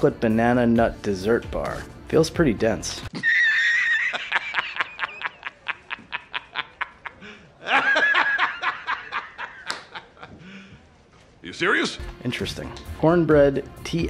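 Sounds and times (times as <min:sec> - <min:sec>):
man laughing hard: 0:03.1 - 0:10.4.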